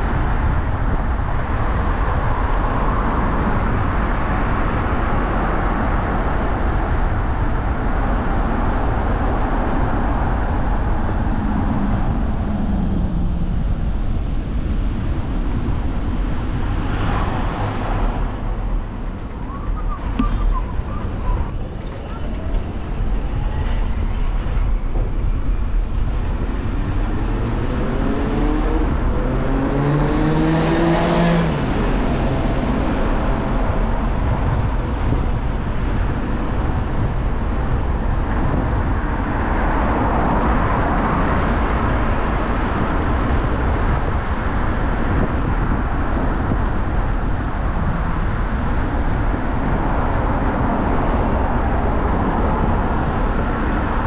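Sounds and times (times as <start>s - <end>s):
road traffic rumble: 0.0s - 54.0s
traffic whooshing past: 9.0s - 54.0s
vehicle engine accelerating: 16.4s - 54.0s.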